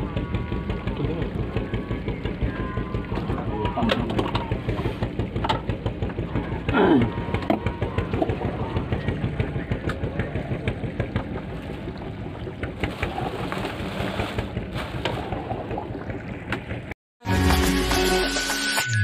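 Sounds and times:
boat engine chugging: 0.0s - 17.0s
water and wind noise: 0.0s - 17.0s
music: 17.2s - 19.0s.

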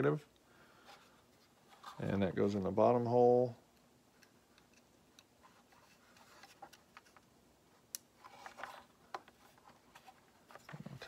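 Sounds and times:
circuit board being handled: 4.2s - 11.0s.

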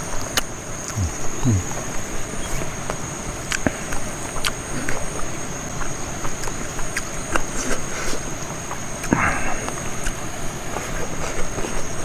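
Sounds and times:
chewing: 0.1s - 12.0s.

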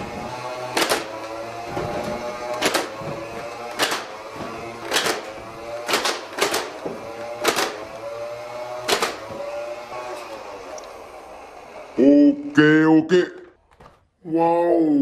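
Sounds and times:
toy dart blaster firing: 0.1s - 9.9s.

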